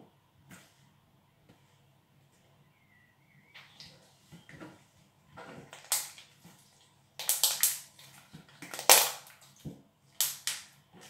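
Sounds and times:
slime squelching pops: 7.2s - 9.3s.

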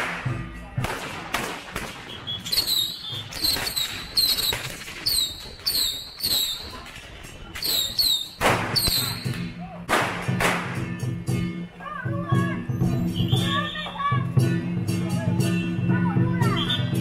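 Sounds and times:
firecrackers cracking: 0.0s - 10.9s.

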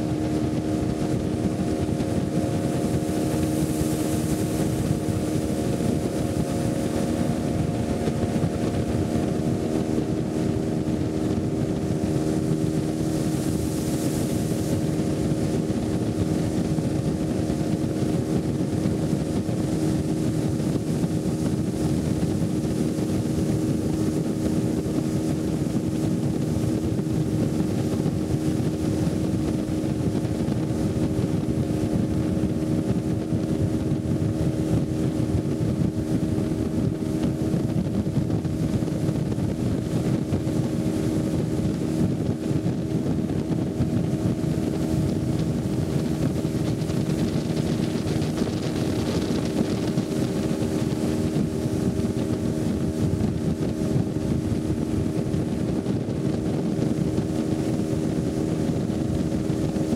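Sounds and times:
motorboat engine droning: 0.0s - 59.9s.

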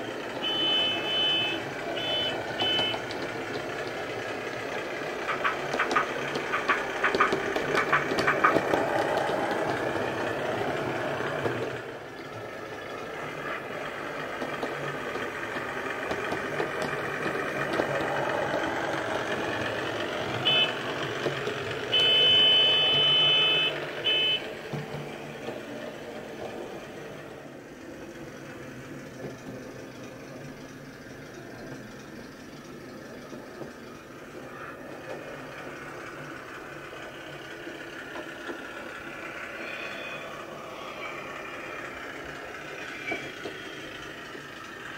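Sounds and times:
model diesel engine sound: 0.0s - 44.9s
rail-joint clanks: 5.2s - 10.7s.

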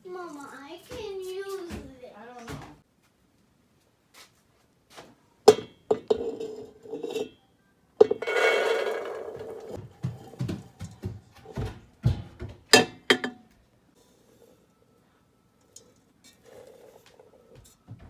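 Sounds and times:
bowl knocking metal pot: 5.5s - 7.3s, 8.0s - 11.0s, 12.1s - 13.5s
berries pouring into pot: 8.0s - 9.8s.

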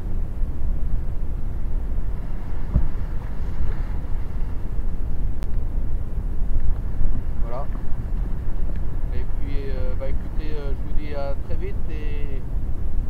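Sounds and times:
wind buffeting microphone: 0.0s - 13.0s
waves breaking on rocks: 2.0s - 5.3s.

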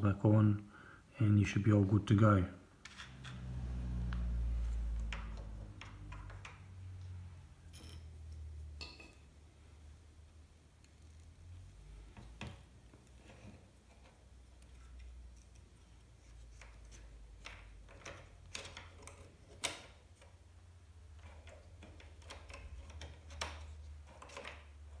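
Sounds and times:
low hum: 3.2s - 5.9s.

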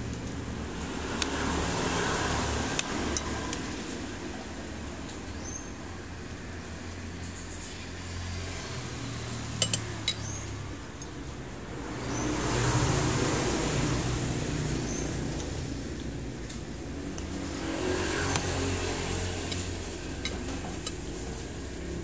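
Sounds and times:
motor vehicle passing: 0.0s - 22.0s
cutlery clinks: 9.6s - 10.3s.

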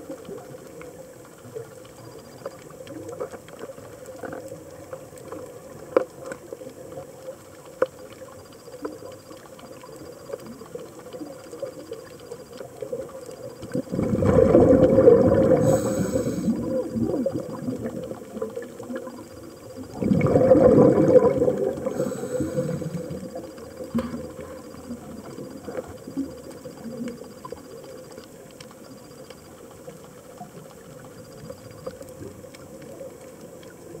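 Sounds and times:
small clicks: 0.1s - 14.0s, 21.7s - 34.0s
diver's breath bubbling underwater: 13.8s - 18.1s, 19.8s - 23.4s.

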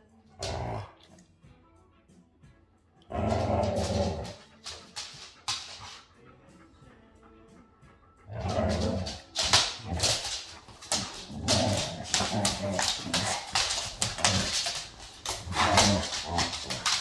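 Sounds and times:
dogs growling and whining: 0.4s - 1.2s, 3.1s - 4.6s, 8.1s - 17.0s
claws clicking on hard floor: 3.2s - 6.1s, 8.4s - 17.0s.

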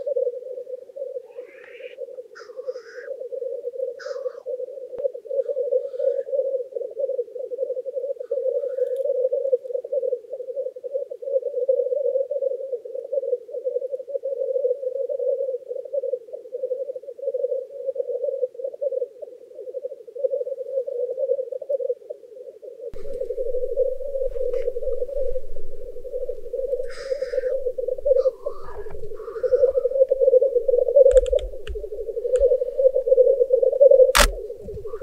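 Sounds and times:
faint higher bird calls: 0.0s - 12.5s, 23.0s - 35.0s
grouse low rolling coos: 0.0s - 35.0s.

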